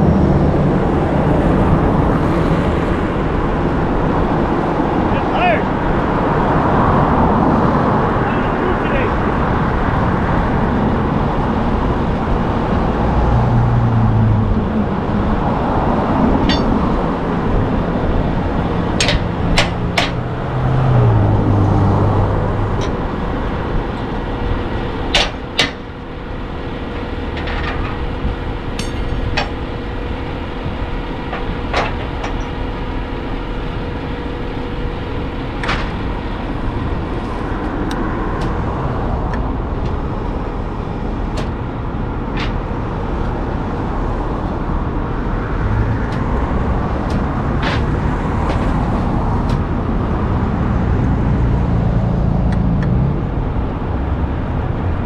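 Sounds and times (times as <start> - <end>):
truck mechanical hum: 0.0 - 55.0
metal clanks and clicks: 16.4 - 16.8, 19.0 - 20.2, 25.1 - 25.8, 27.3 - 28.0, 28.7 - 29.6, 31.3 - 32.6.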